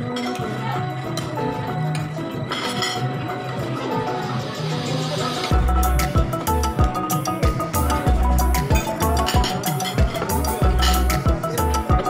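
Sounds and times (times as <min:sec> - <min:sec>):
sustained melodic notes: 0:05.4 - 0:12.0
steady drum beat: 0:05.5 - 0:12.0.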